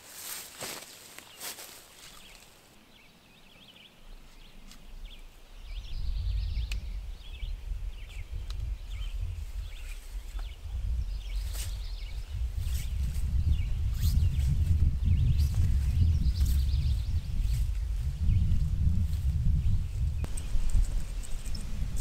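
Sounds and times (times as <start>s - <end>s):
footsteps on forest floor: 0.0s - 2.7s
rope wrapped around tree: 0.0s - 22.0s
small birds chirping: 0.2s - 22.0s.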